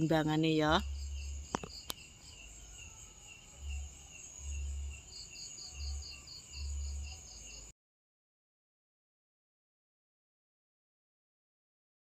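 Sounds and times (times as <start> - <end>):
insects chirring: 0.0 - 7.7
pulsing insect call: 0.0 - 7.7.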